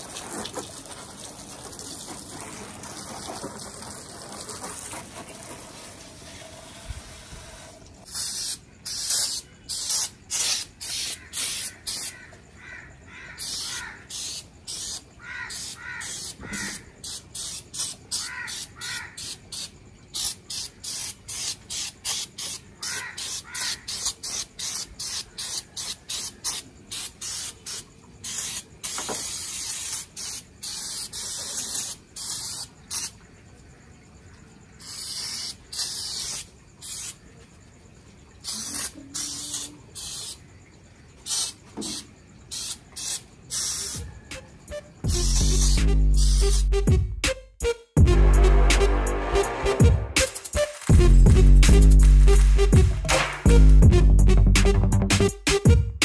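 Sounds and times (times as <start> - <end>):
sprayer hissing squirts: 0.0 - 12.2, 13.4 - 33.3, 34.8 - 37.2, 38.4 - 40.4, 41.2 - 46.6.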